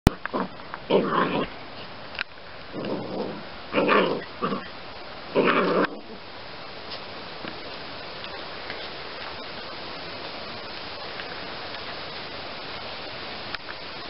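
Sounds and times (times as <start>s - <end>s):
puppy growling and barking: 0.1s - 1.6s, 2.7s - 6.2s.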